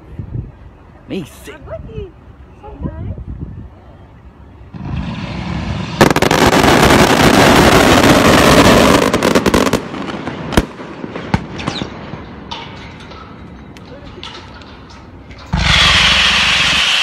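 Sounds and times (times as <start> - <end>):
fireworks rising rush: 4.7 - 11.9, 15.4 - 17.0
fireworks rapid bangs: 4.8 - 11.9, 15.5 - 17.0
sharp firework bangs: 4.8 - 12.2, 15.5 - 17.0.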